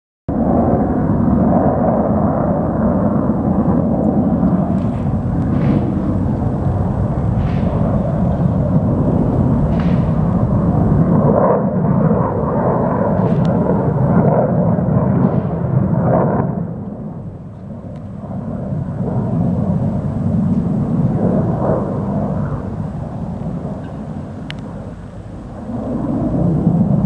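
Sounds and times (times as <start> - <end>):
aircraft engine rumble: 0.3 - 27.0.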